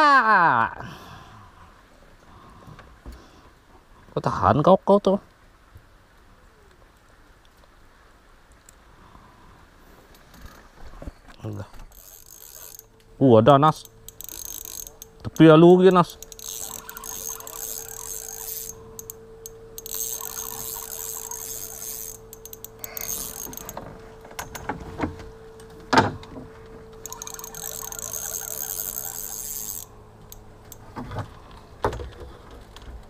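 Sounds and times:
spinning reel gears whirring: 0:11.9 - 0:23.8, 0:27.0 - 0:30.9.

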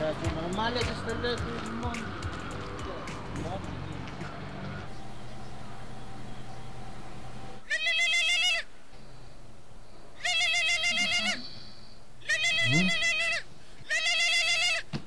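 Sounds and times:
goat-bleat phone ringtone: 0:07.7 - 0:08.6, 0:10.2 - 0:11.4, 0:12.3 - 0:14.8.

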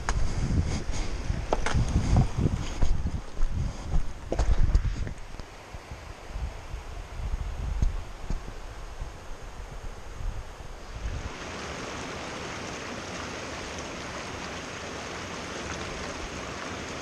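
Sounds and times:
wind rumble on microphone: 0:00.0 - 0:11.8
creek rushing over rocks: 0:10.8 - 0:17.0.

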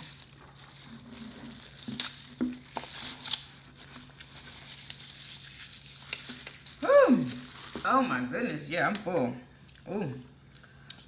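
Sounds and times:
plastic packaging crinkling: 0:00.0 - 0:08.1.

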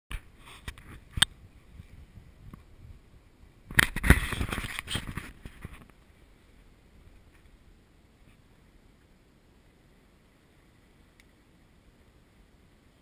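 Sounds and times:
knocks and scraping: 0:03.7 - 0:06.0.

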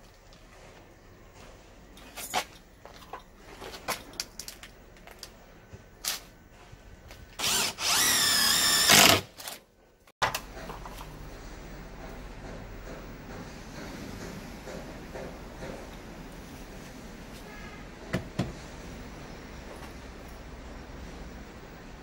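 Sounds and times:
cordless drill running: 0:07.4 - 0:09.3.

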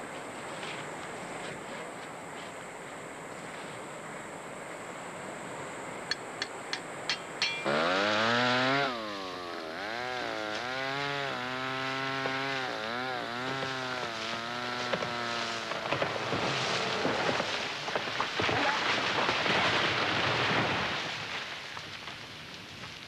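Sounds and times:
chainsaw cutting timber: 0:07.5 - 0:19.5.

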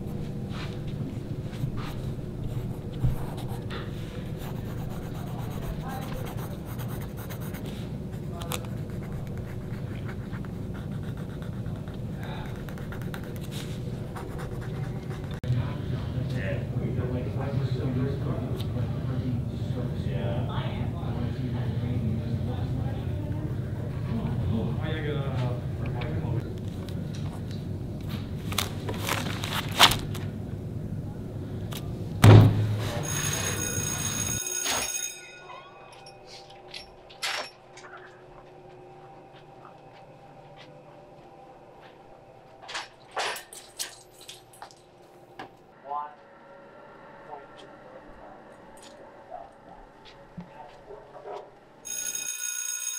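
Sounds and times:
steady low hum: 0:00.0 - 0:33.0, 0:35.6 - 0:51.8
pen scratching on paper: 0:02.5 - 0:15.4
heavy thump: 0:32.2 - 0:33.0.

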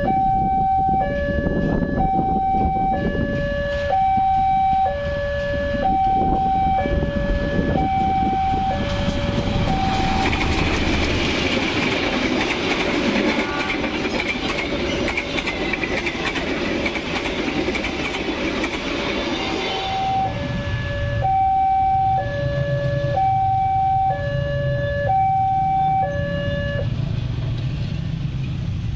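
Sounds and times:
two-tone crossing alarm: 0:00.0 - 0:10.9, 0:19.2 - 0:26.9
passenger train rumble: 0:00.0 - 0:28.9
wheels clicking over rail joints: 0:07.6 - 0:19.2.

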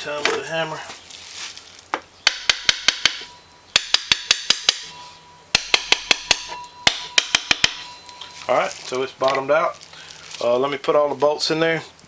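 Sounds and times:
small hammer tapping metal: 0:02.2 - 0:08.4.

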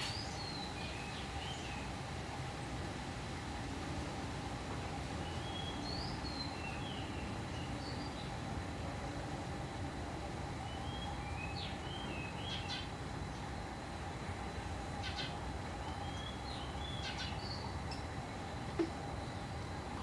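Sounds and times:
songbird singing: 0:00.0 - 0:02.0, 0:05.2 - 0:08.4, 0:10.6 - 0:13.6, 0:14.8 - 0:20.0
steady low hum: 0:00.0 - 0:20.0.

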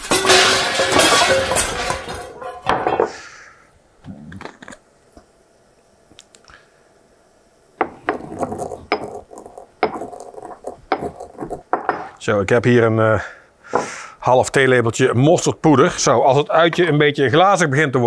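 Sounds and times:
pestle grinding seeds: 0:07.8 - 0:12.2
stone mortar and pestle clattering: 0:07.8 - 0:12.2.

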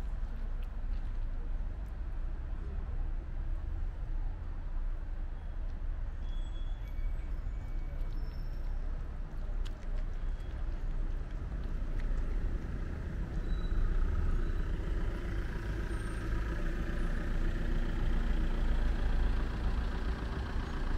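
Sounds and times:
vehicle engine running: 0:11.1 - 0:20.9.

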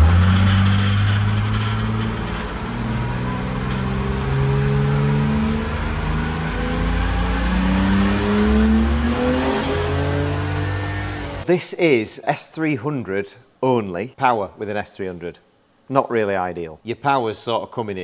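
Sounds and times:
diesel engine revving under load: 0:00.0 - 0:11.5.

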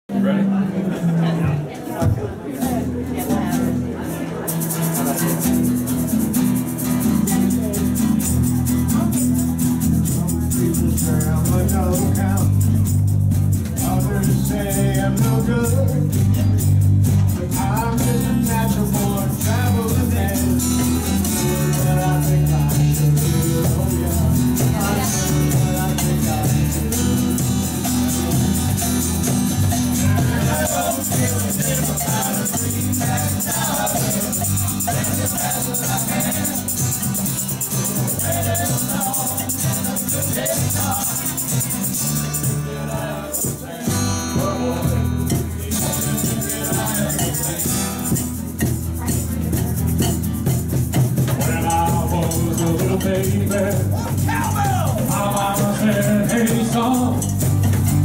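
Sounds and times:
strummed acoustic guitars: 0:00.1 - 0:58.0
tambourine shaken: 0:04.4 - 0:58.0
electric bass: 0:04.9 - 0:58.0
voices singing together: 0:13.6 - 0:16.6, 0:17.3 - 0:48.6, 0:51.0 - 0:58.0.

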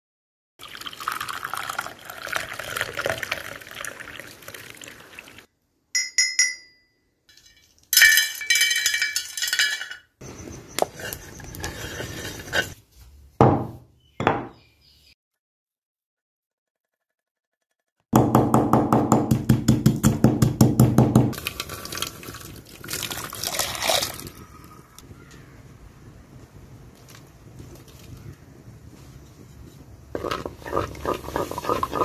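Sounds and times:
short ringing clink: 0:06.0 - 0:09.3.

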